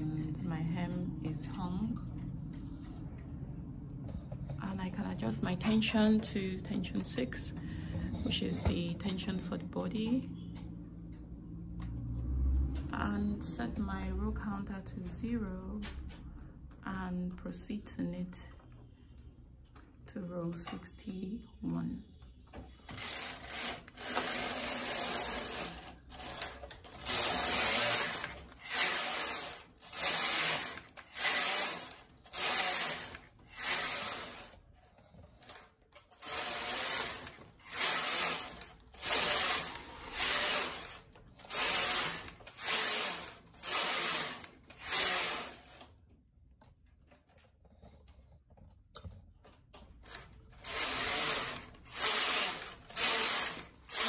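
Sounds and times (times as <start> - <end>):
knitting machine carriage sweeping: 22.8 - 45.9, 50.0 - 54.0.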